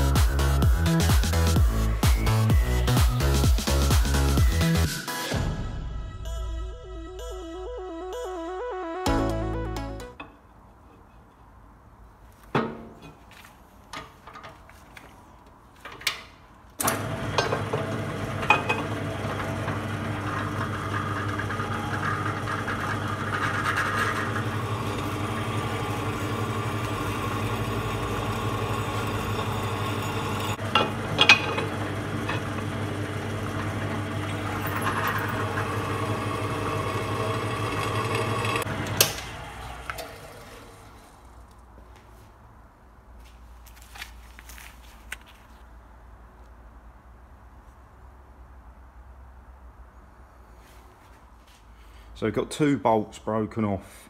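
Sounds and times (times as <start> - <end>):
pillar drill motor hum: 16.8 - 41.0.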